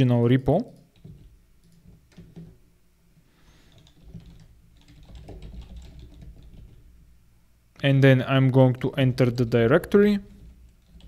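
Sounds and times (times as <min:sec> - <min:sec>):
computer keyboard typing: 0:00.7 - 0:02.6, 0:03.7 - 0:06.8.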